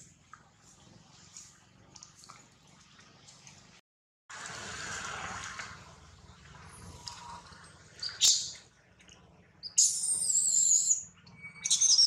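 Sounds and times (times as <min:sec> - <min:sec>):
baby monkey squealing: 0:09.8 - 0:12.0.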